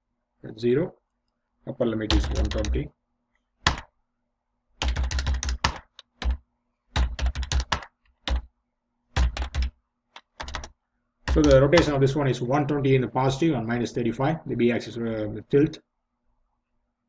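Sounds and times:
typing on computer keyboard: 0:02.1 - 0:02.8, 0:04.8 - 0:06.4, 0:07.0 - 0:08.5, 0:09.2 - 0:12.0.

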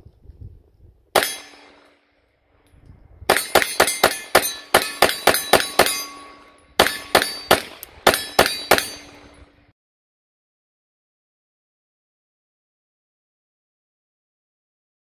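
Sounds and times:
pistol shots with metallic ring: 0:01.2 - 0:02.0, 0:03.3 - 0:09.6.

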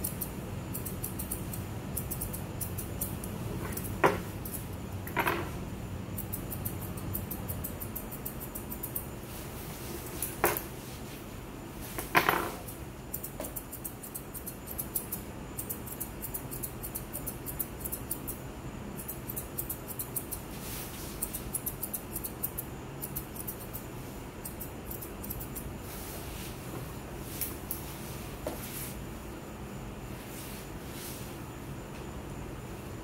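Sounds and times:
scissors snipping fur: 0:00.0 - 0:04.7, 0:06.2 - 0:09.1, 0:12.5 - 0:18.4, 0:19.0 - 0:20.5, 0:21.2 - 0:25.7.

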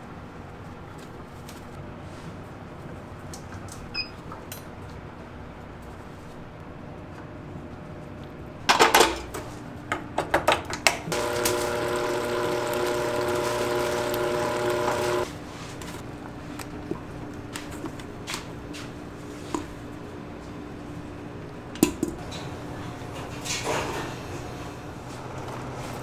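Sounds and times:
small electric motor running: 0:11.1 - 0:15.3.

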